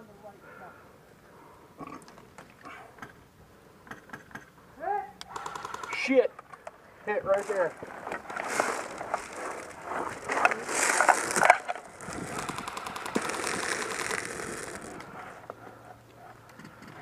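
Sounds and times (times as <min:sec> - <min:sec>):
gear rustling and scraping: 0:07.3 - 0:15.6.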